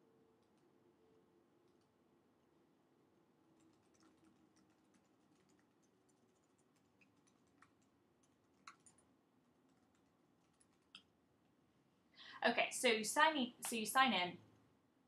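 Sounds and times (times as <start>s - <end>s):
faint steady hum: 0.0s - 15.0s
typing on computer keyboard: 3.6s - 11.1s.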